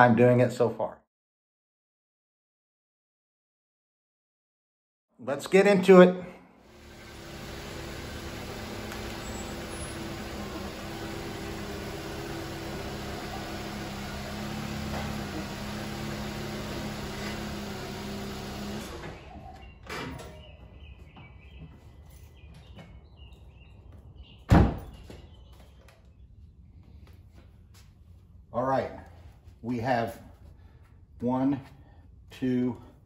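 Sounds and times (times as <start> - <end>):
car engine running: 6.7 - 19.3.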